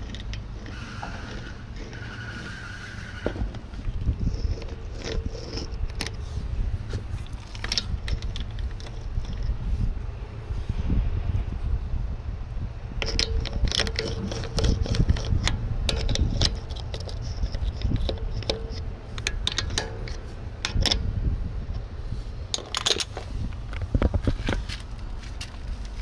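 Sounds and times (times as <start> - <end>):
low rumble: 0.0 - 26.0
metal socket clinking on bolts: 13.0 - 21.1, 22.5 - 23.3.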